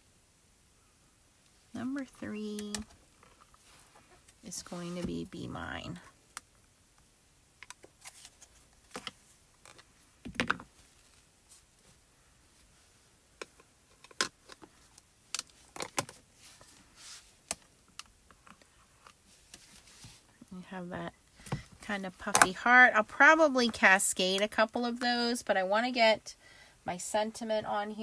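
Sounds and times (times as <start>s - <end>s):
plastic cases clicking and knocking: 8.9s - 10.7s.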